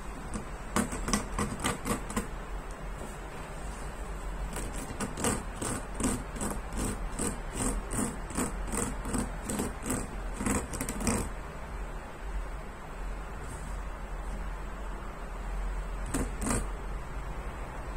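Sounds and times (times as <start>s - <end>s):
hand scraping plastic bristles: 0.0s - 2.3s, 3.0s - 11.3s, 16.0s - 16.7s.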